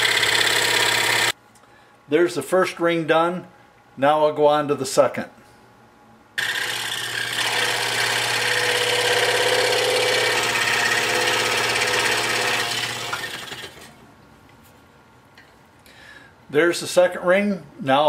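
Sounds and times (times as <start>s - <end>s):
scroll saw cutting wood: 0.0s - 1.4s, 6.4s - 13.9s.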